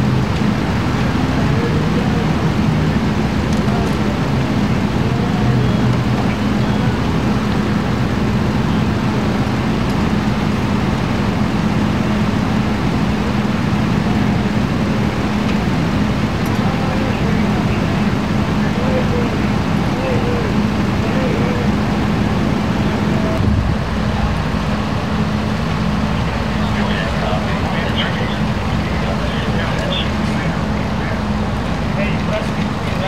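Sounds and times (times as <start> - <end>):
engine idling: 0.0 - 33.0.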